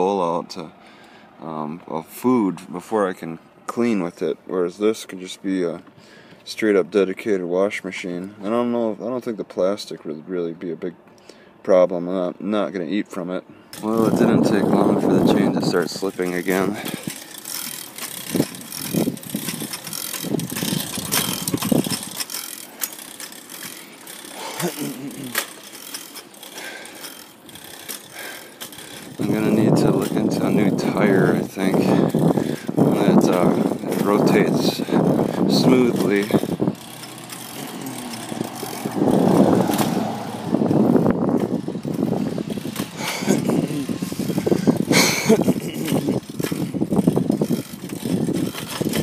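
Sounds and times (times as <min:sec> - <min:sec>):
tyre and road noise: 0:00.0 - 0:49.0
bicycle chain and gears clicking: 0:13.6 - 0:49.0
wind rushing over microphone: 0:13.9 - 0:17.1, 0:18.2 - 0:22.2, 0:29.0 - 0:49.0.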